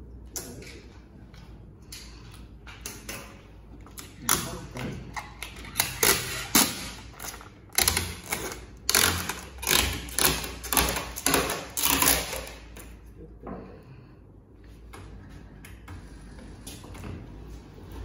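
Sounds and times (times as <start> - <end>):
plastic film peeling: 5.6 - 12.7.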